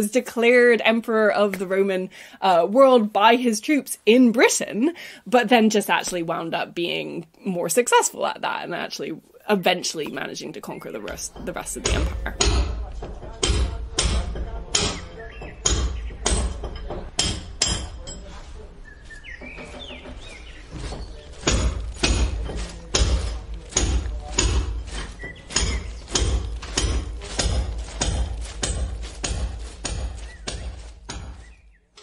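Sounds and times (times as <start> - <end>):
sharp knocks: 11.1 - 18.1, 19.3 - 32.0.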